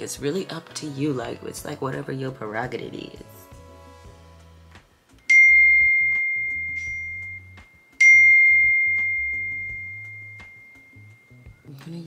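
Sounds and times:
quiet background music: 0:00.0 - 0:12.0
high clear chime dings: 0:05.3 - 0:11.8.

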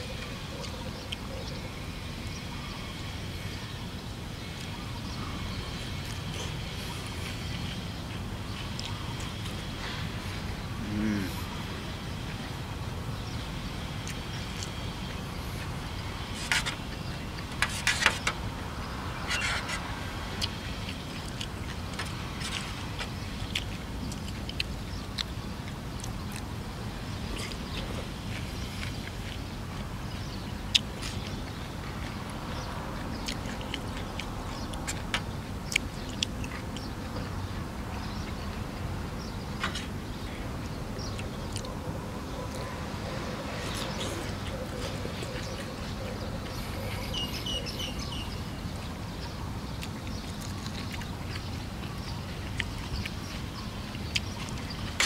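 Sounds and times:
noodles chewed and slurped: 0:04.4 - 0:55.0
wet chewing and slurping: 0:19.3 - 0:26.5, 0:30.7 - 0:38.4, 0:49.7 - 0:55.0.

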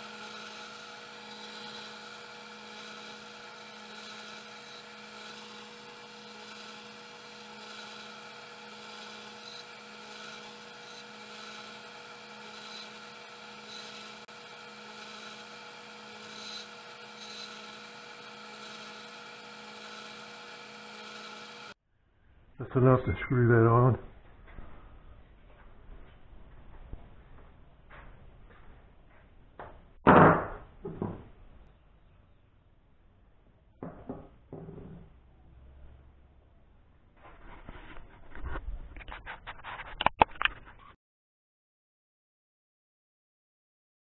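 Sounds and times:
disc sander motor hum: 0:00.0 - 0:21.8
wood sanding against disc: 0:00.0 - 0:21.8.

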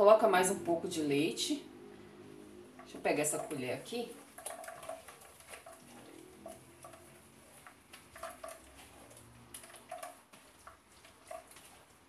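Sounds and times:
spoon scraping plastic sieve: 0:02.8 - 0:12.0.

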